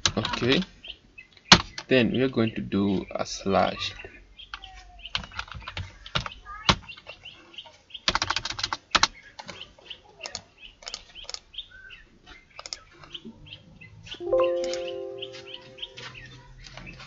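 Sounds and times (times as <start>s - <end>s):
small birds chirping: 0.0s - 17.0s
keyboard typing: 14.3s - 15.9s.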